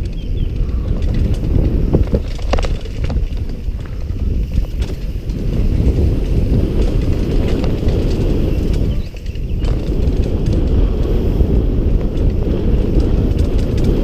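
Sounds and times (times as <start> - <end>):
bike clattering over rocks: 0.0 - 11.2
wind buffeting microphone: 0.0 - 14.0.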